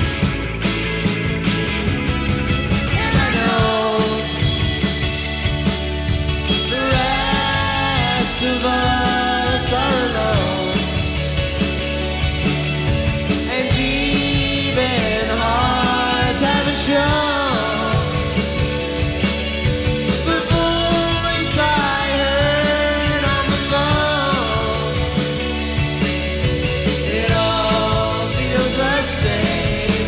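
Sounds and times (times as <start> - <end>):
bass guitar: 0.0 - 30.0
drum kit beat: 0.0 - 30.0
electric guitars: 0.0 - 30.0
man singing: 2.9 - 4.9, 6.5 - 11.2, 13.4 - 18.5, 20.1 - 25.4, 26.9 - 30.0.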